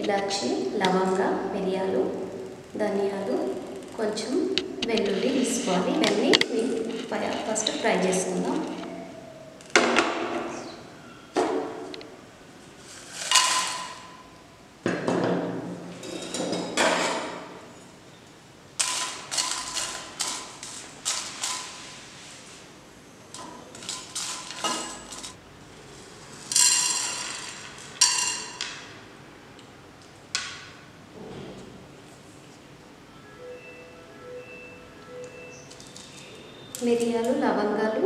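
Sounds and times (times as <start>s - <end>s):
spices rattling in metal pot: 18.8s - 21.8s, 26.4s - 28.7s.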